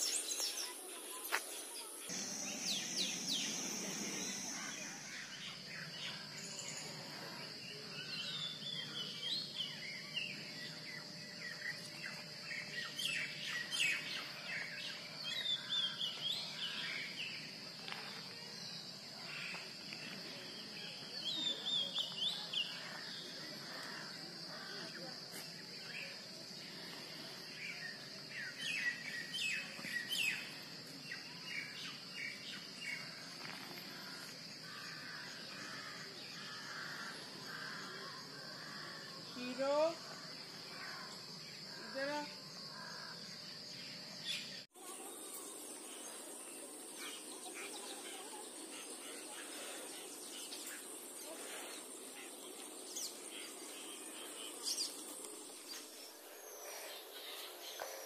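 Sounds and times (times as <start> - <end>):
high-pitched insect drone: 0.0 - 7.6
birds chirping: 0.0 - 25.2, 25.8 - 58.0.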